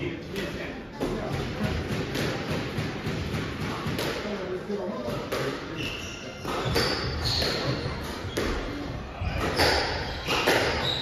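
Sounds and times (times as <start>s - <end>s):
squash ball hits: 0.4s - 4.4s, 5.1s - 5.7s, 6.4s - 11.0s
shoes squeaking on court floor: 5.7s - 11.0s.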